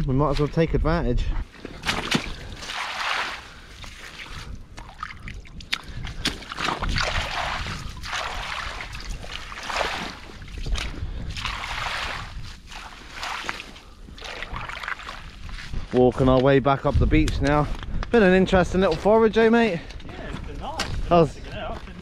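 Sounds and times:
rake swishing through wet seaweed: 1.8s - 4.5s, 6.2s - 15.3s.

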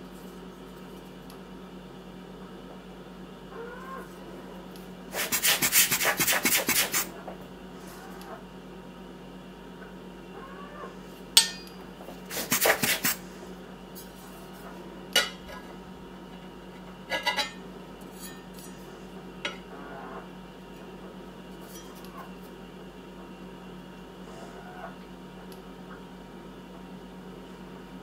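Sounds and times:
steady low hum: 0.0s - 28.0s
knife clinking on ceramic plate: 11.4s - 11.8s.

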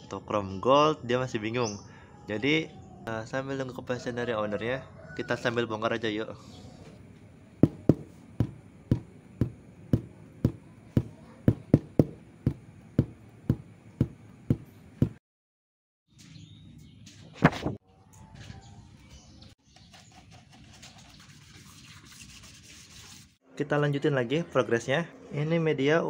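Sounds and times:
rubbing noise: 7.6s - 15.2s
tool knocking on metal wheel: 7.6s - 15.2s.

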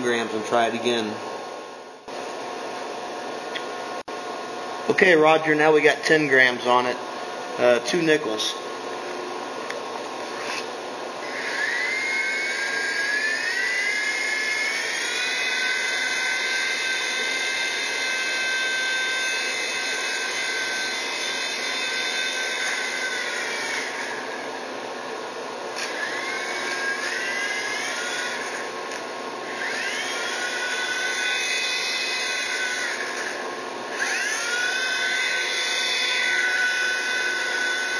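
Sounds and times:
toy helicopter motor whining: 10.3s - 24.4s, 25.7s - 37.9s.

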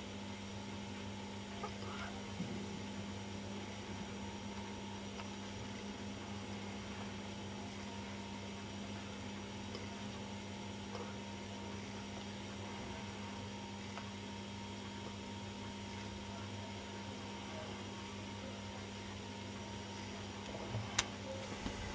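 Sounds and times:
steady low hum: 0.0s - 21.9s.

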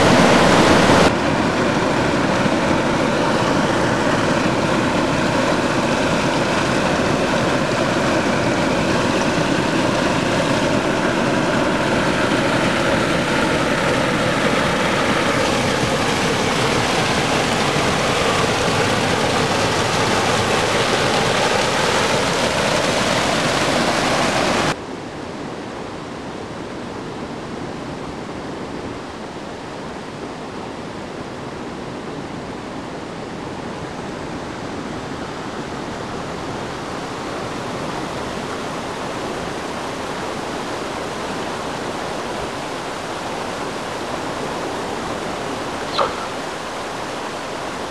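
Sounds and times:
water rushing: 0.0s - 24.8s, 33.1s - 47.9s
faint sliding tones: 45.8s - 47.2s.

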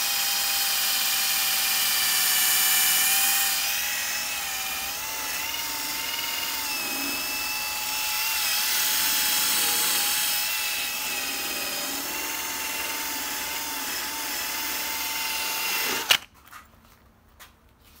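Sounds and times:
power drill motor whine: 0.0s - 16.3s
polishing pad rubbing hiss: 5.2s - 7.3s, 8.8s - 10.2s.

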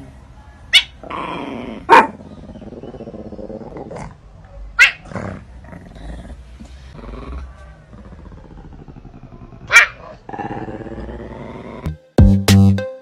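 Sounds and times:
cat growling low: 1.0s - 4.2s, 5.0s - 11.9s.

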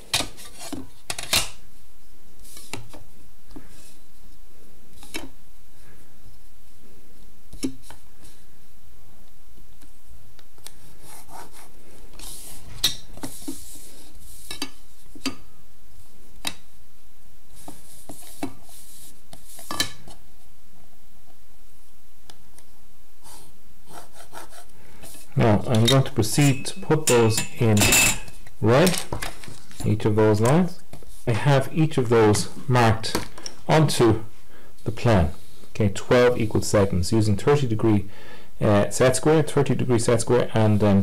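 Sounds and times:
pencil strokes: 10.7s - 14.5s, 17.5s - 19.7s, 23.2s - 25.3s.

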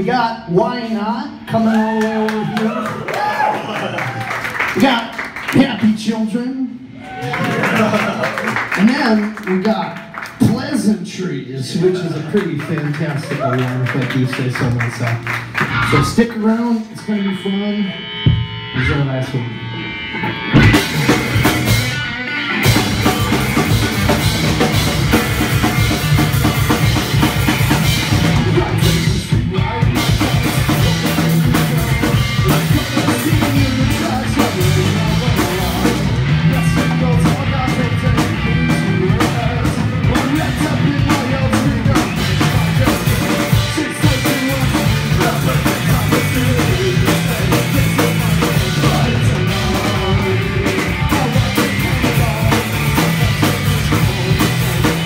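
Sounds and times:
electric guitars: 11.2s - 55.0s
drum kit beat: 14.0s - 18.8s, 19.8s - 55.0s.

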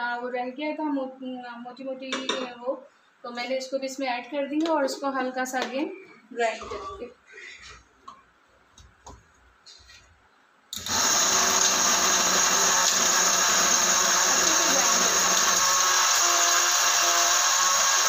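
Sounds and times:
electric spice grinder running: 10.8s - 18.0s.

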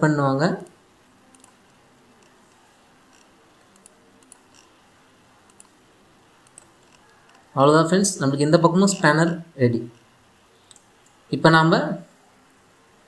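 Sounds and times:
computer mouse clicks: 0.6s - 7.6s, 9.9s - 11.2s.

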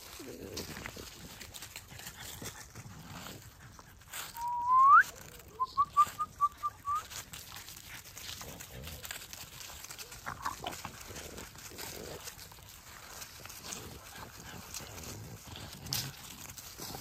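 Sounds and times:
person whistling: 4.4s - 7.1s.

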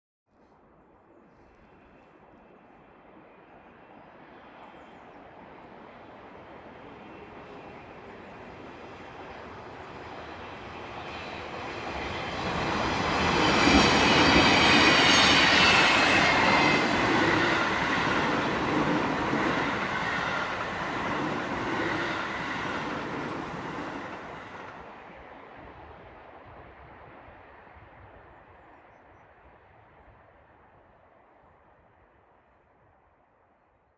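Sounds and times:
train passing by: 0.6s - 28.8s.

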